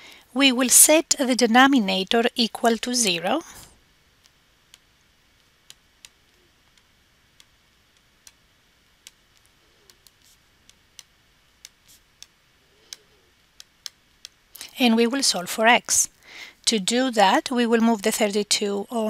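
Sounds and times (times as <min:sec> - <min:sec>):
stylus tapping on a tablet: 0:04.2 - 0:08.4, 0:09.0 - 0:14.4.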